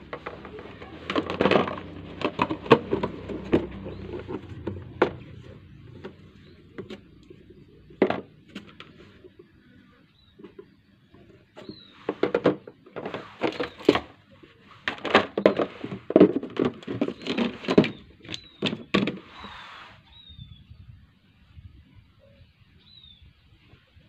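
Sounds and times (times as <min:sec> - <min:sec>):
plastic containers clattering: 0:00.0 - 0:09.6, 0:10.4 - 0:19.5.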